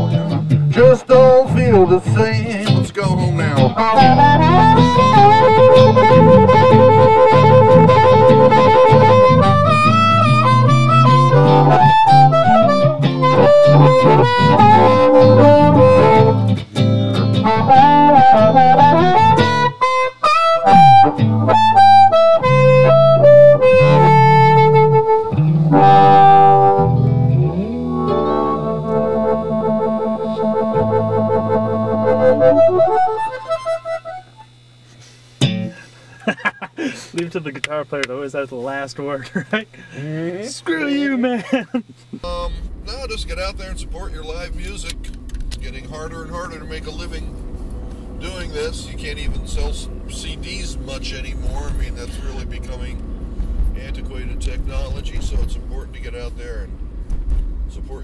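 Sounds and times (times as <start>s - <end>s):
electric guitar accompaniment: 0.0s - 34.8s, 35.4s - 36.0s, 42.0s - 58.0s
amplified harmonica solo: 0.0s - 36.1s.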